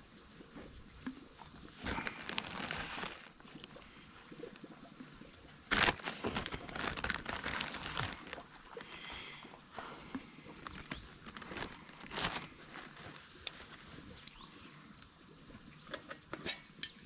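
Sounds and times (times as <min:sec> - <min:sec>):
plastic bag crinkling: 0:01.6 - 0:04.4, 0:05.7 - 0:09.4, 0:10.1 - 0:14.2.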